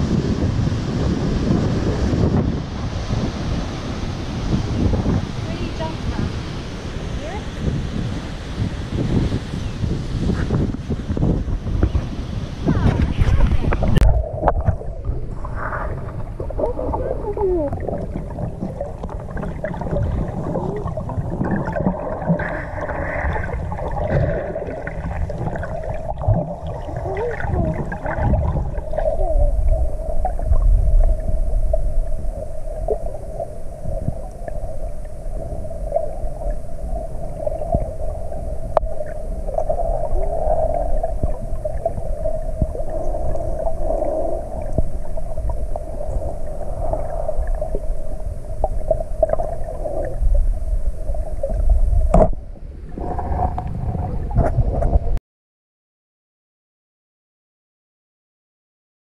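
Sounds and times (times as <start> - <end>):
muffled underwater rumble: 0.0 - 55.2
underwater hum: 0.0 - 55.2
underwater gurgles: 11.5 - 55.2.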